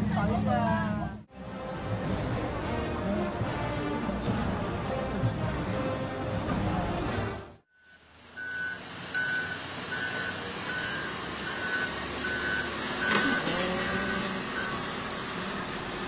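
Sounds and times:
truck reversing alarm beeping: 7.7s - 15.4s.

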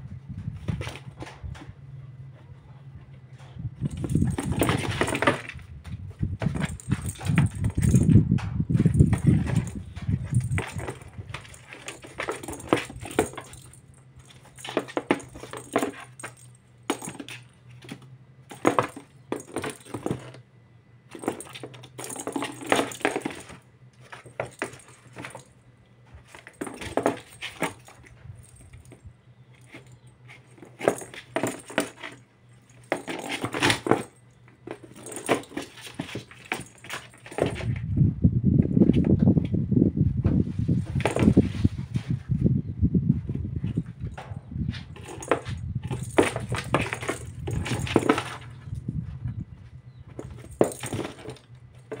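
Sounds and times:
plastic ball clattering on cardboard: 3.8s - 20.4s, 26.2s - 29.0s
paws scrabbling on cardboard: 3.9s - 8.1s, 43.7s - 52.0s.

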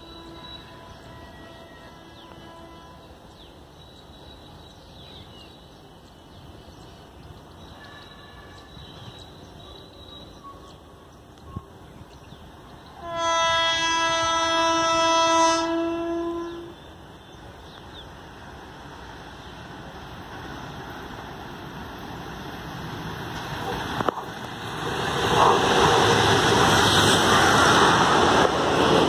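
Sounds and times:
locomotive horn blast: 0.0s - 3.1s, 13.0s - 16.8s.

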